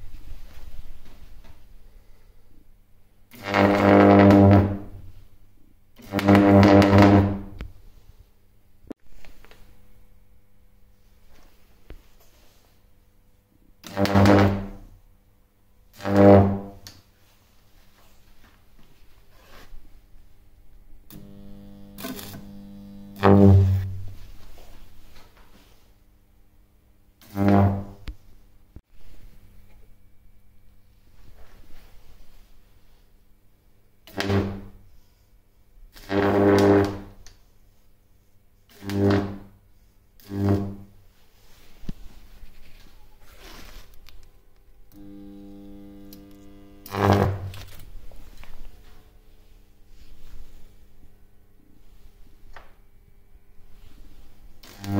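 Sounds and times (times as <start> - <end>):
high-voltage arc crackling: 3.3 - 4.8, 6.0 - 7.6, 21.1 - 24.3, 44.9 - 48.6, 54.5 - 54.9
loud buzzing arc: 3.3 - 4.9, 6.0 - 7.6, 13.8 - 14.9, 15.9 - 16.9, 21.1 - 24.3, 38.7 - 39.5, 40.2 - 41.0, 44.9 - 48.5, 54.6 - 54.9
deep mains buzz: 20.6 - 25.2, 40.2 - 54.9.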